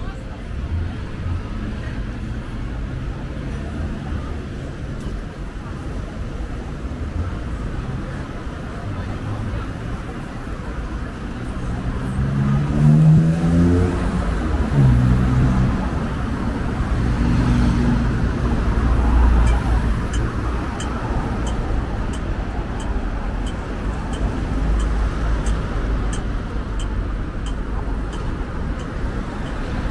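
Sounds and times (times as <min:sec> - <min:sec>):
car engines passing: 0:00.0 - 0:29.9
rumble of tyres and engines: 0:00.0 - 0:29.9
car accelerating: 0:10.8 - 0:29.9.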